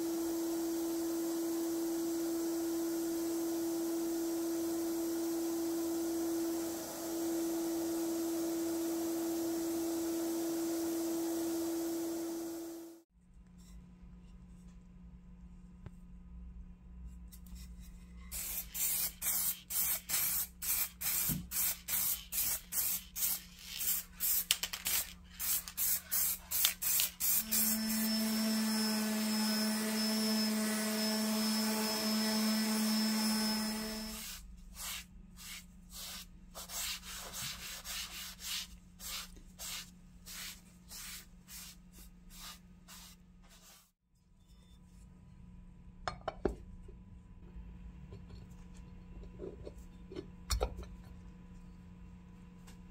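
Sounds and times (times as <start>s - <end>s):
electric sander humming: 27.6s - 34.2s
quick sanding strokes: 34.1s - 44.0s
cloth rubbing on wood: 34.2s - 44.0s.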